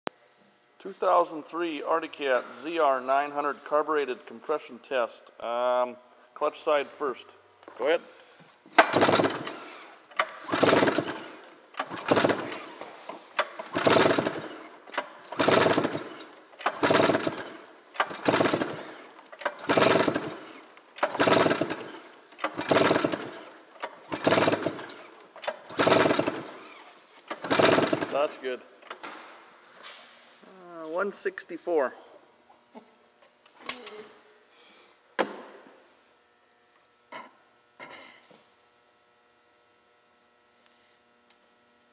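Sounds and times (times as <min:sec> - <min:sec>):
engine pull-start cranking: 0:08.8 - 0:12.8, 0:13.4 - 0:29.0.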